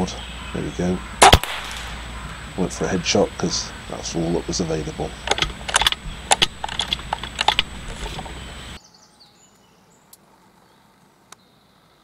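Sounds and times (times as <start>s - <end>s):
steady hiss: 0.0s - 8.8s
faint woodland background: 0.0s - 12.0s
sharp clicks and ticks: 5.2s - 8.4s.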